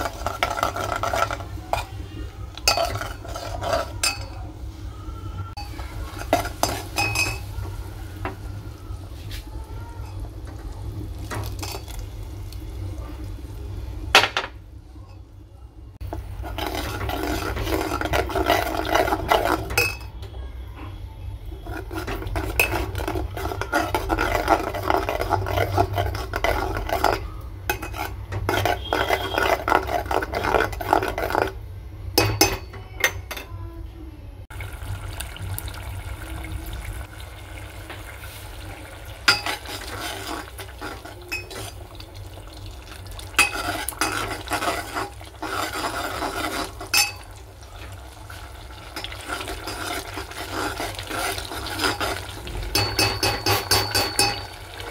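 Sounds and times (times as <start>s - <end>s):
spoon scraping metal pot: 0.0s - 2.0s, 2.6s - 4.4s, 16.1s - 20.2s, 21.5s - 31.6s, 39.3s - 41.9s, 43.4s - 47.9s, 48.9s - 54.9s
spoon clinking against pot: 2.6s - 4.4s, 5.6s - 7.5s, 16.6s - 20.3s, 21.7s - 31.5s, 32.2s - 33.5s, 39.3s - 40.1s, 40.8s - 41.8s, 43.4s - 45.6s, 46.5s - 47.3s, 52.7s - 54.6s.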